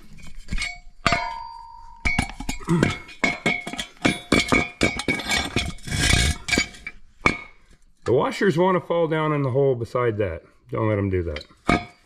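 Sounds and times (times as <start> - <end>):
steel parts clanking: 0.4 - 8.2.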